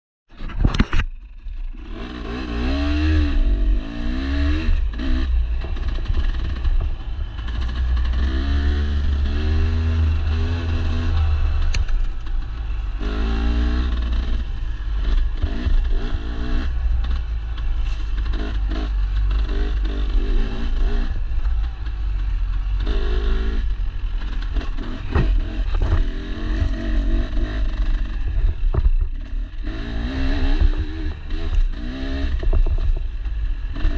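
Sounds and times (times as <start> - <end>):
low rumble: 0.4 - 33.9
dirt bike engine revving: 1.6 - 33.9.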